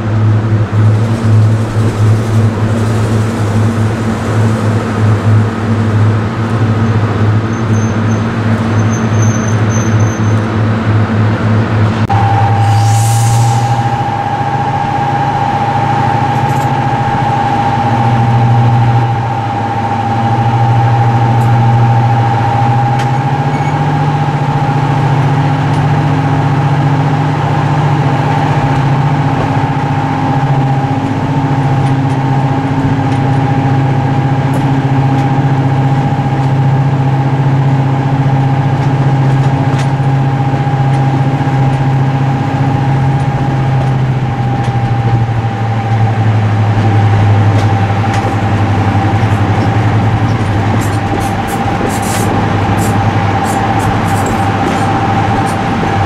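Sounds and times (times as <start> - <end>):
diesel locomotive idling: 0.0 - 56.0
high steady whistle: 12.1 - 23.8.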